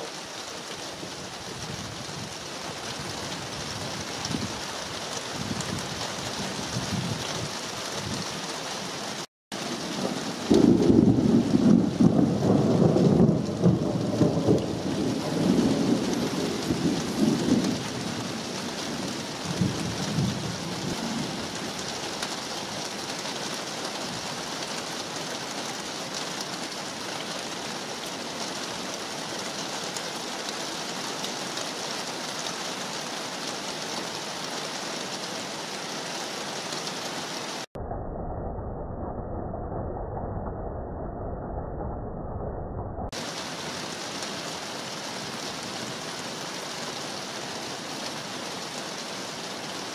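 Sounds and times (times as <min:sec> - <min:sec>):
steady rain: 0:00.0 - 0:37.8, 0:43.1 - 0:49.9
thunder rumbling: 0:09.6 - 0:21.8.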